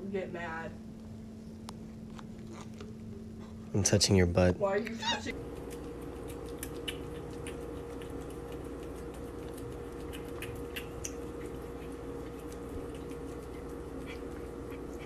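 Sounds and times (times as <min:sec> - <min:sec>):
steady low hum: 0:00.0 - 0:15.0
cat licking and nibbling: 0:05.3 - 0:15.0.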